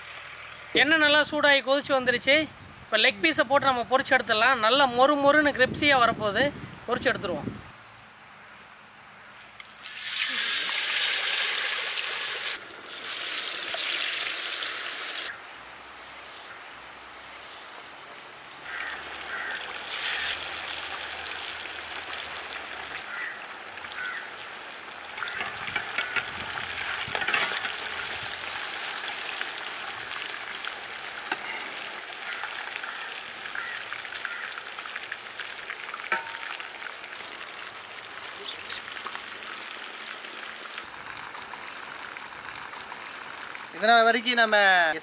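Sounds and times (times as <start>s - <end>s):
oil crackling: 9.4s - 15.4s, 18.6s - 44.5s
chicken deep-frying in oil: 9.5s - 45.0s.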